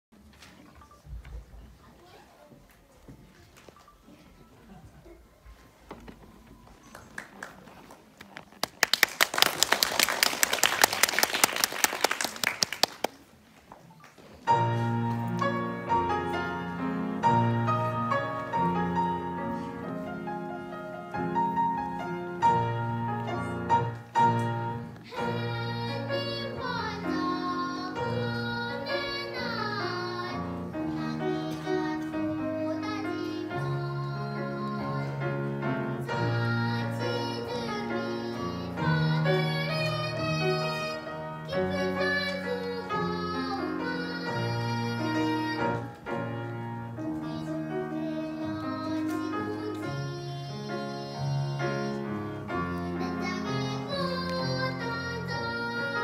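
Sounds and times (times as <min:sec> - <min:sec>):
audience applauding: 0:06.8 - 0:13.4
grand piano playing: 0:14.5 - 0:56.0
girl singing into a microphone: 0:25.0 - 0:35.4, 0:36.0 - 0:46.0, 0:47.0 - 0:56.0.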